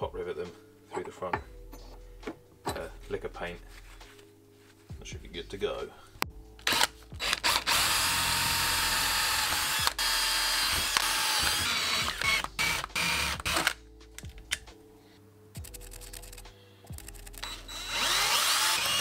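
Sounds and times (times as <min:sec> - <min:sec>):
power drill grinding through metal: 0:06.7 - 0:13.8, 0:17.4 - 0:19.0.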